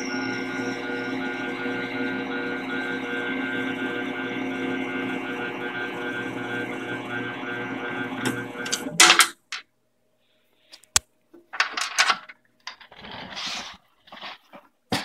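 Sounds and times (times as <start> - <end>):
lathe humming: 0.0 - 9.1
scattered clicks and knocks: 8.2 - 9.6, 10.8 - 13.1.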